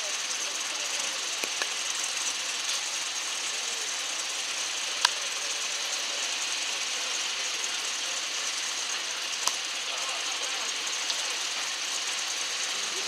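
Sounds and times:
diesel train engine running: 0:00.0 - 0:13.0
sharp click: 0:09.4 - 0:09.6.

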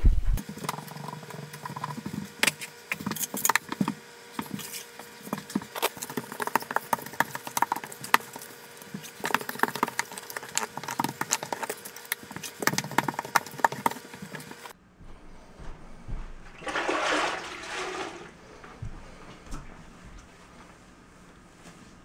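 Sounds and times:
grout float scraping tiles: 0:16.6 - 0:18.4.

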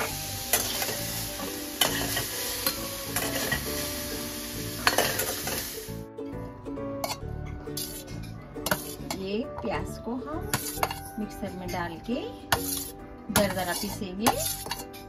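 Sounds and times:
onions sizzling in hot oil: 0:00.0 - 0:06.1, 0:12.6 - 0:14.8
metal spatula scraping pan: 0:08.6 - 0:09.2, 0:10.4 - 0:11.1, 0:12.5 - 0:15.0.

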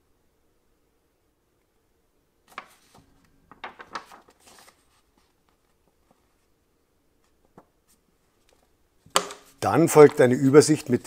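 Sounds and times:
paper sheets rustling: 0:02.5 - 0:06.5, 0:07.2 - 0:11.0.

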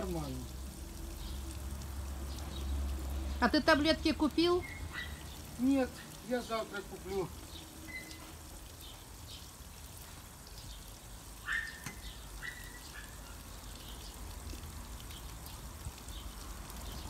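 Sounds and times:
faint high chirping: 0:07.9 - 0:08.3.

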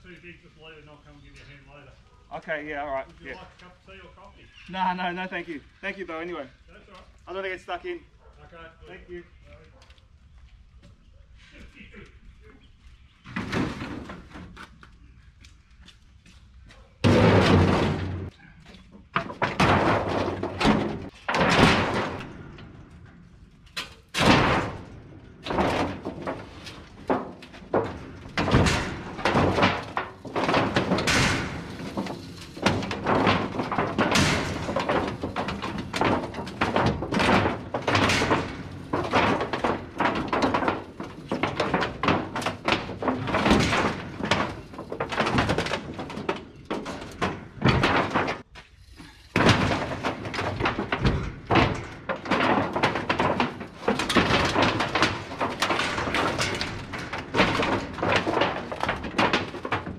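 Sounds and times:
metal roofing sheets banging: 0:13.2 - 0:14.6, 0:17.0 - 0:59.9.

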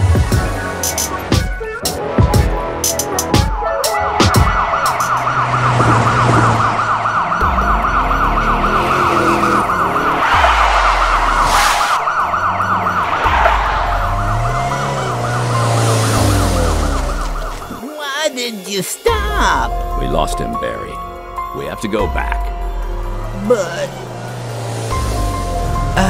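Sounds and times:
police siren yelping: 0:03.8 - 0:17.9
car engines revving: 0:04.0 - 0:17.8, 0:19.3 - 0:26.0.

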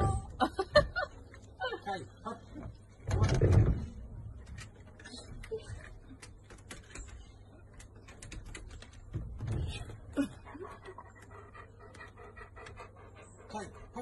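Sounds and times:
dog claws tapping on wooden deck: 0:04.4 - 0:10.1.

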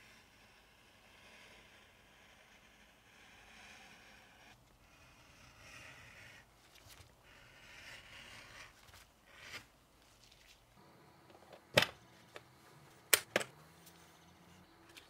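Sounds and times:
soft handling rustling: 0:09.9 - 0:10.8.

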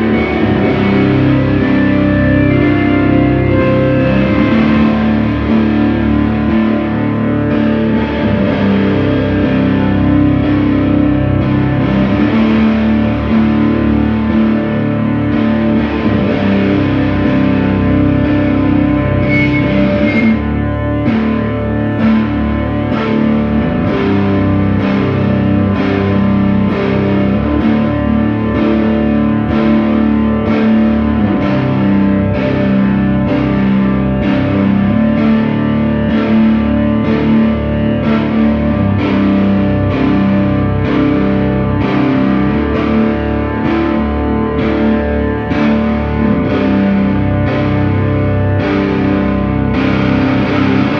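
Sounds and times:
pulse of struck notes: 0:00.0 - 0:30.5
distorted electric guitar drone: 0:00.0 - 0:50.9.

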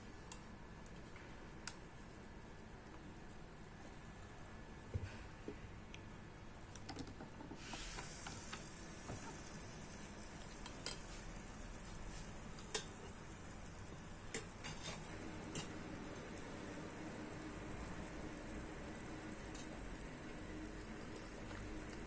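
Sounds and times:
batter sizzling in waffle maker: 0:06.0 - 0:22.0.

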